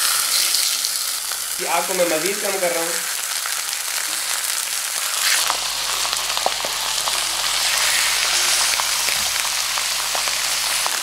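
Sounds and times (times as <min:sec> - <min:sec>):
meat sizzling in a skillet: 0:00.0 - 0:11.0
crackles and pops: 0:03.0 - 0:11.0.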